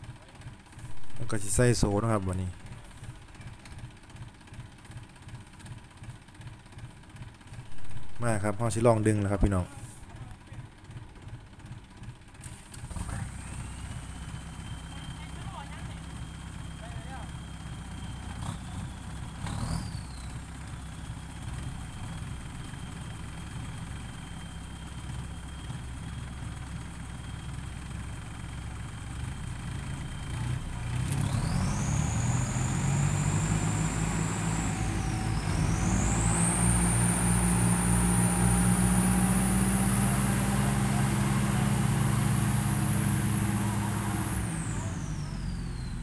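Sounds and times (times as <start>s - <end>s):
diesel tractors idling: 0.0s - 46.0s
tractor engine revving under load: 12.8s - 25.5s, 28.3s - 46.0s.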